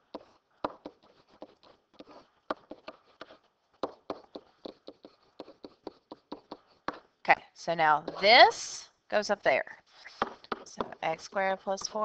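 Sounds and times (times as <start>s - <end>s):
pen tapping and scratching: 0.0s - 7.2s, 10.1s - 11.1s, 11.7s - 12.0s.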